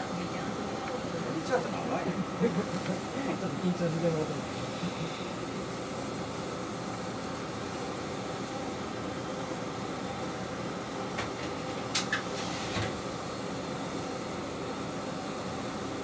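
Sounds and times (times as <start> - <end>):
diesel railcar engine idling: 0.0 - 12.4.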